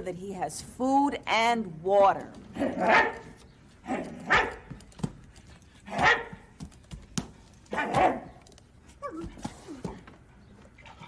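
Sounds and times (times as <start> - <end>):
dog puppet barking: 2.6 - 3.3, 3.9 - 4.6, 5.9 - 6.5, 7.7 - 8.4.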